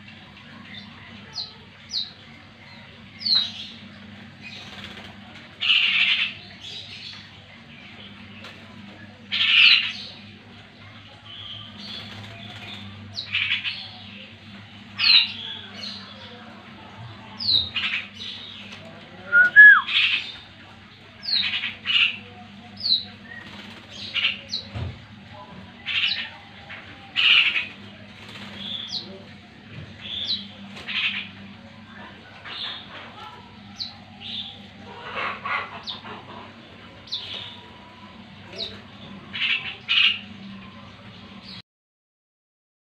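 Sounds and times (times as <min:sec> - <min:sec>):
birds calling and whistling: 0:00.0 - 0:16.4, 0:17.2 - 0:41.6
wing flutters: 0:04.5 - 0:06.1, 0:27.2 - 0:29.0.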